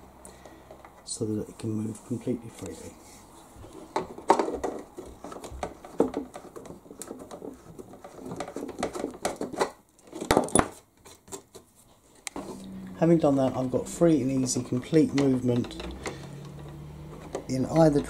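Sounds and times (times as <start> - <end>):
hand tool scraping plastic: 3.6 - 12.6.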